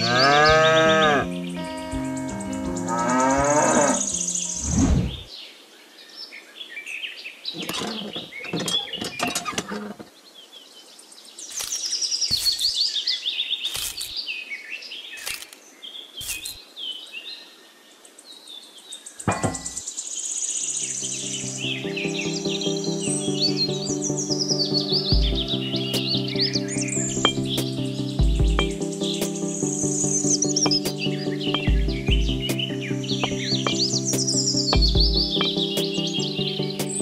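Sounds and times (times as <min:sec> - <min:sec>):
cow mooing: 0:00.0 - 0:04.5
birds chirping and singing: 0:00.0 - 0:37.0.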